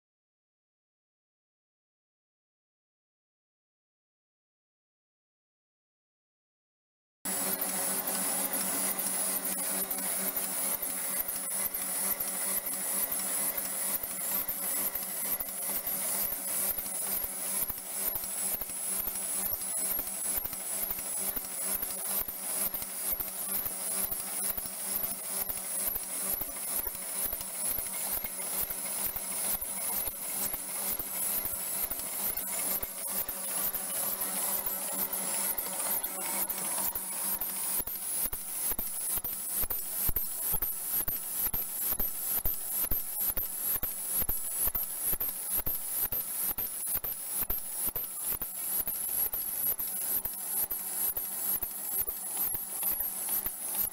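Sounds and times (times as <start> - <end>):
wrapping machine cycling: 7.3 - 40.0.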